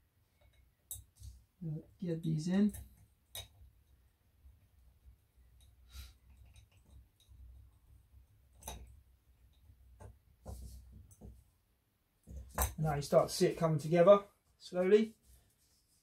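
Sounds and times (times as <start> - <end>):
faint clicks and taps: 0.3 - 1.4, 2.7 - 11.5.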